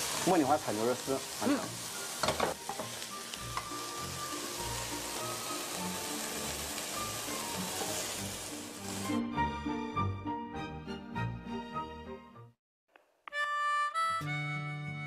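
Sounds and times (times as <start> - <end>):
meat sizzling in a wok: 0.0 - 9.4
soft background music: 0.2 - 12.5.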